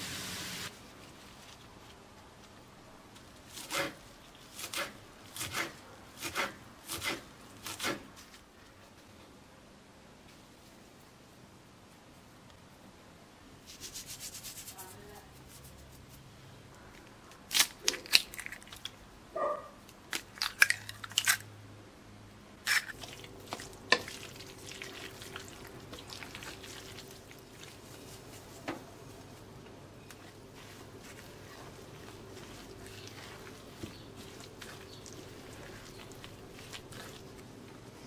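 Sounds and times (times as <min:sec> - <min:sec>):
fork scraping ceramic bowl: 0:30.6 - 0:37.4.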